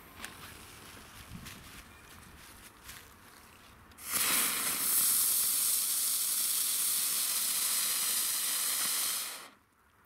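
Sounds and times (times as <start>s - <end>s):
firework spraying sparks with hiss: 4.0s - 9.6s.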